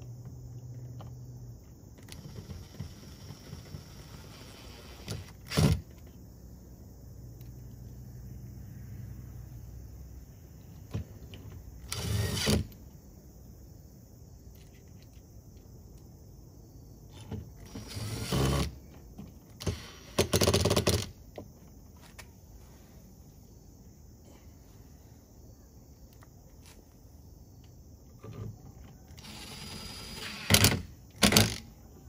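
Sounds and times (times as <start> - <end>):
cordless drill driving screws: 11.9 - 12.7, 17.6 - 18.7, 29.2 - 31.6.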